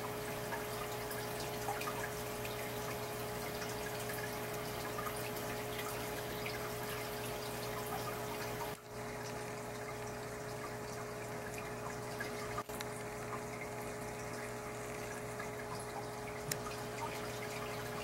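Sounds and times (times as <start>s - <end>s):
filter hum: 0.0s - 18.0s
water trickling and splashing: 0.0s - 18.0s
small click: 16.5s - 16.7s.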